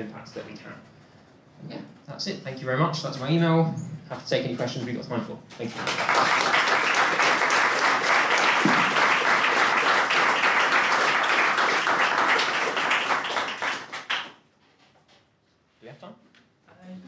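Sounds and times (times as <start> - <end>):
audience applauding: 5.6 - 14.4.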